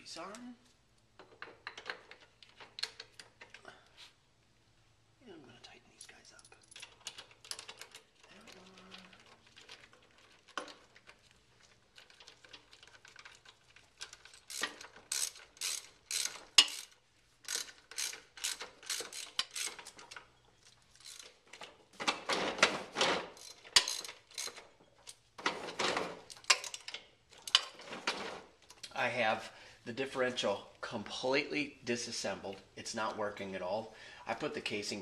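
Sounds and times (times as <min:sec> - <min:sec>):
ratchet wrench clicking: 0:14.0 - 0:20.1, 0:21.0 - 0:21.3, 0:23.4 - 0:25.2.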